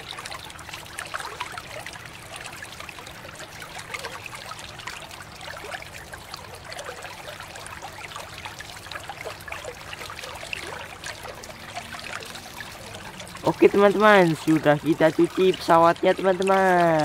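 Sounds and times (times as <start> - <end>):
running water splashing: 0.0 - 17.0
water trickling in basin: 0.0 - 17.0.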